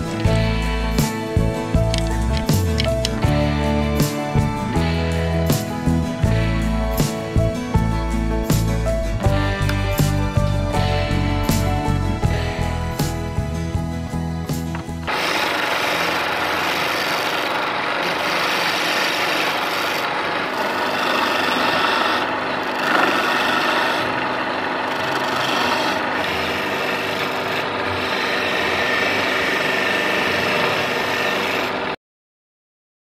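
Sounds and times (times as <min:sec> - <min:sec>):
wood lathe spinning: 0:00.0 - 0:32.0
steel tool scraping wood: 0:14.6 - 0:31.9.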